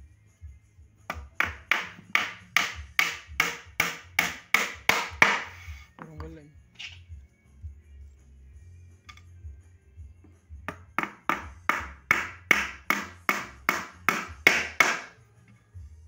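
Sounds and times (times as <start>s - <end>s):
hammer driving nail into wood: 1.1s - 5.6s, 10.7s - 15.2s.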